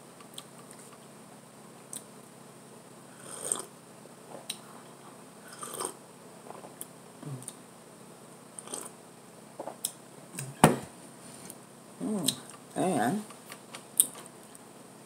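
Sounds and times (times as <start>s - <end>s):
sipping and swallowing coffee: 3.2s - 3.7s, 5.5s - 6.0s.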